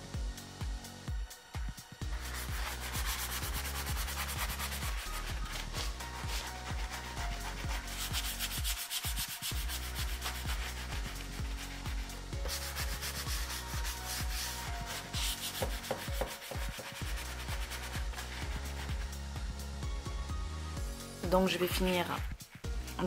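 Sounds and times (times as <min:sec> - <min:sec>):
hand sanding wood: 0:02.1 - 0:19.2.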